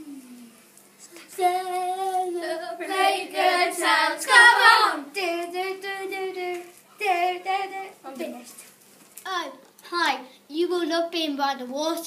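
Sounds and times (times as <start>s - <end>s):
child singing: 1.3s - 8.4s.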